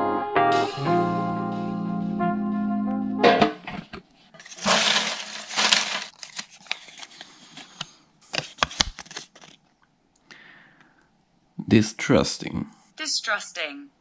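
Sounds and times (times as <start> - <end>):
paper slips rustling in metal tin: 4.4 - 7.2
paper crackling as unfolded: 4.4 - 9.6.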